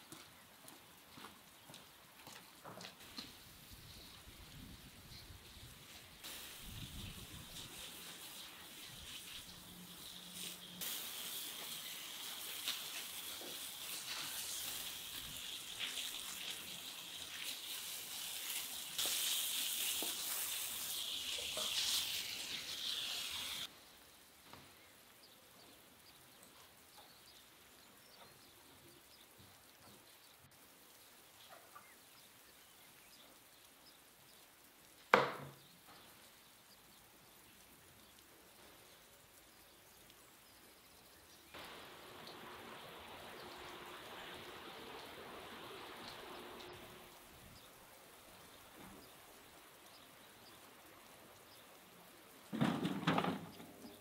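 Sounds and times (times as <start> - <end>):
hose water jetting: 2.4 - 23.7, 41.5 - 54.0.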